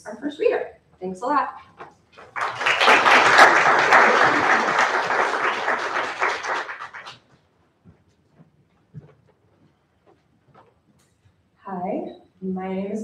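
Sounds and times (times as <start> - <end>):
audience applauding: 2.2 - 7.2.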